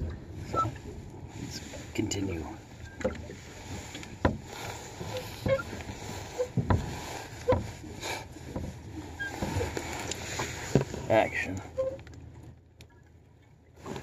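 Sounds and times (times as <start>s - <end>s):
water wash: 0.0s - 12.5s.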